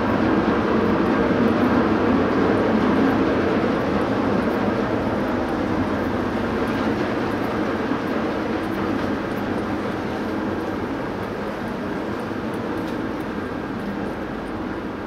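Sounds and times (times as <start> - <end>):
ship engines droning: 0.0 - 15.0.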